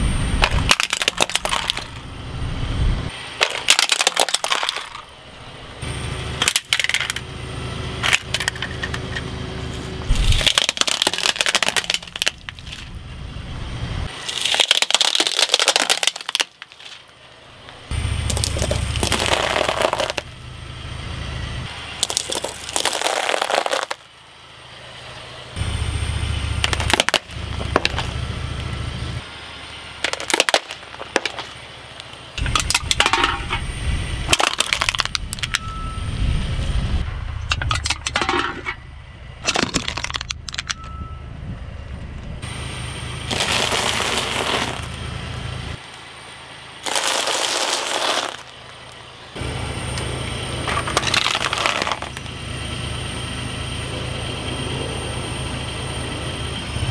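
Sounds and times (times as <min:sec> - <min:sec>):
low tyre rumble: 0:00.0 - 0:56.9
objects crushed under a tyre: 0:00.4 - 0:02.0, 0:03.4 - 0:05.1, 0:06.4 - 0:07.2, 0:10.1 - 0:13.0, 0:14.2 - 0:17.2, 0:18.2 - 0:20.3, 0:22.0 - 0:24.1, 0:26.6 - 0:28.2, 0:30.0 - 0:33.6, 0:34.2 - 0:35.7, 0:37.5 - 0:38.8, 0:39.4 - 0:40.8, 0:43.3 - 0:45.0, 0:46.8 - 0:49.0, 0:50.6 - 0:52.3.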